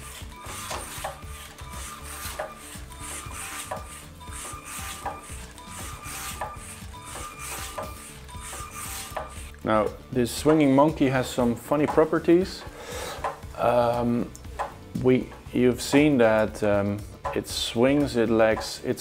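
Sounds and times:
plastic parts rubbing and clicking: 0.0 - 9.6
short motor whirs: 0.0 - 9.6.

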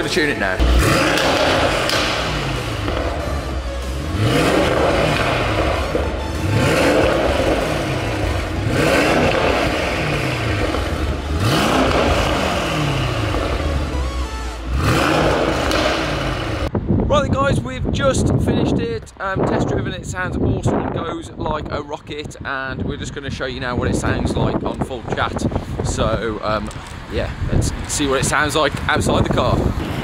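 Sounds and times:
car engine revving: 0.0 - 16.7.

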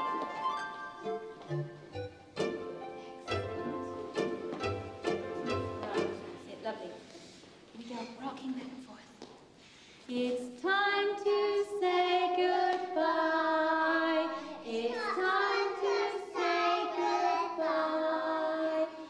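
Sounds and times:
young children singing: 10.5 - 19.0.

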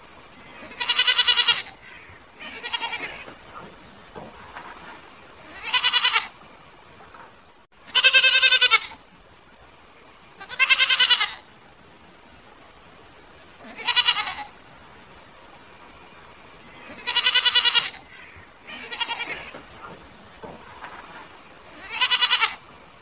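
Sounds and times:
goats bleating: 0.6 - 6.4, 7.9 - 9.0, 10.4 - 11.5, 13.6 - 14.6, 16.8 - 22.7.

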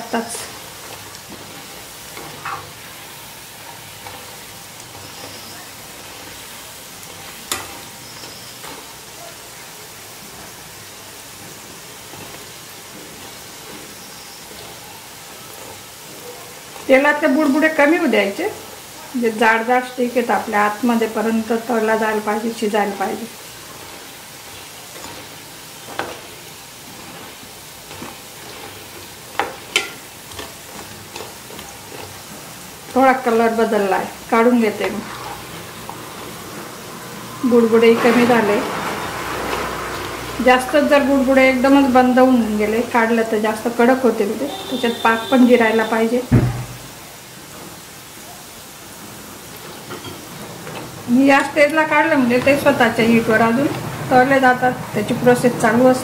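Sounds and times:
skimmer tapping: 0.0 - 9.0, 20.3 - 42.7, 49.6 - 54.4
dough sizzling in hot oil: 0.0 - 56.0
metal spoon clinking against pan: 7.5 - 8.4, 29.4 - 30.5.

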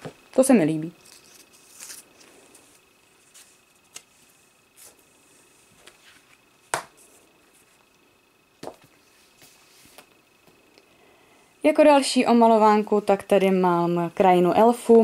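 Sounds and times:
paper rustling: 1.0 - 5.0
book knocking: 6.7 - 6.9, 8.6 - 8.9
book slapping shut: 6.7 - 6.9.

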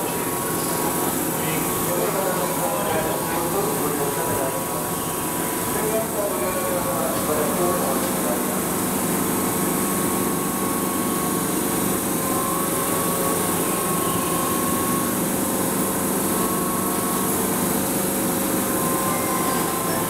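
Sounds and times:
electric train whirring hum: 0.0 - 20.0
faint high whine: 10.5 - 20.0.

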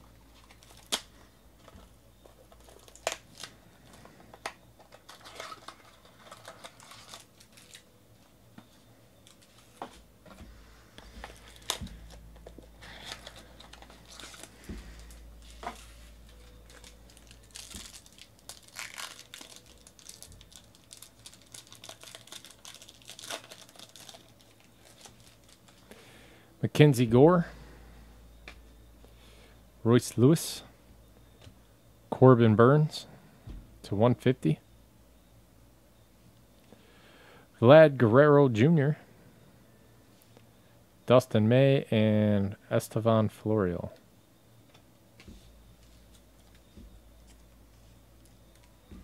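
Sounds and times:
foil packaging crinkling: 0.3 - 7.9, 9.2 - 9.9, 11.0 - 26.0.

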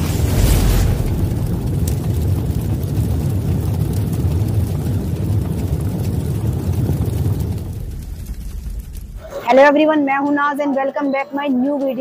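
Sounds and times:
deep steady rumble: 0.0 - 9.5.

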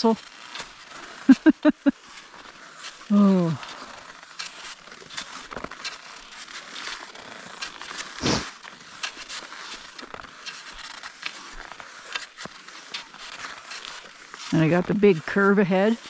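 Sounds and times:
skis sliding and crunching over snow: 0.0 - 16.0.

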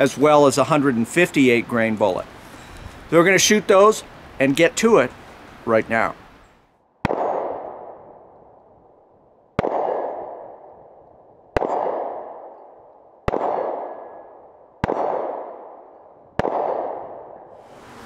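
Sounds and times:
revolver shots with echo: 11.5 - 12.4.

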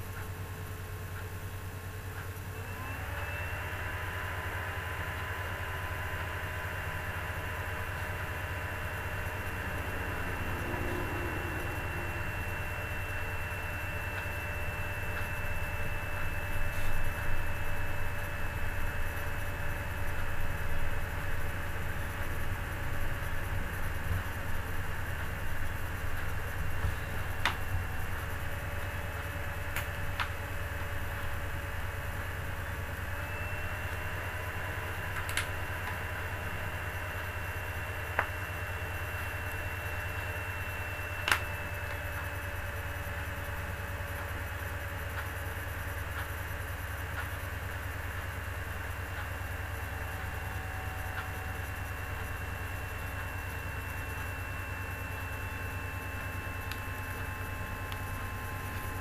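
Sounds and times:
low hum: 6.6 - 59.0
thin high whine: 7.0 - 35.0.

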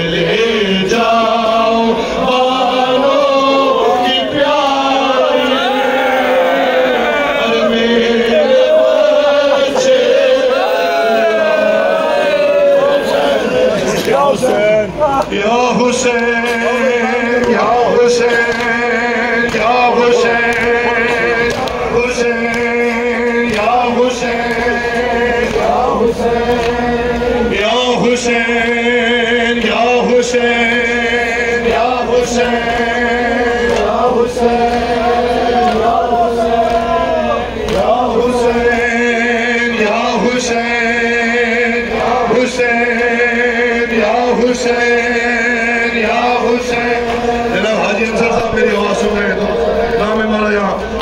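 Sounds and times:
crowd chanting along: 0.0 - 51.0
man chanting over a loudspeaker: 0.0 - 51.0
steady held tone: 20.0 - 22.8.

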